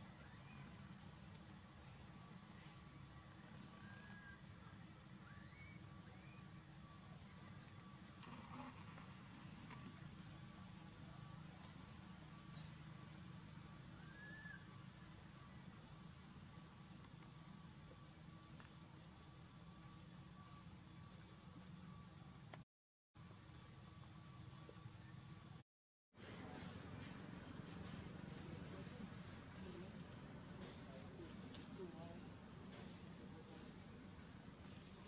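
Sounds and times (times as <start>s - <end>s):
faint chirps: 0.0s - 22.6s
high insect drone: 0.0s - 22.6s, 23.2s - 25.6s.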